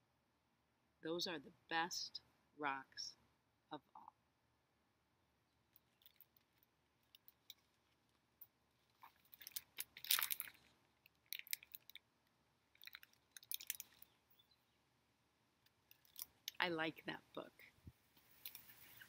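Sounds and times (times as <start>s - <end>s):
book pages rustling: 8.8s - 12.0s, 18.2s - 19.0s.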